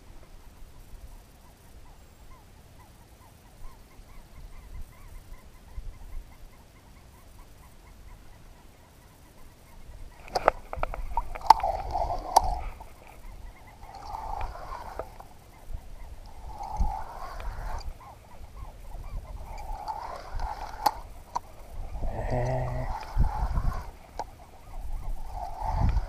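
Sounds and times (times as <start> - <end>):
spinning reel cranking: 13.6 - 15.4, 16.0 - 18.4, 19.1 - 26.0.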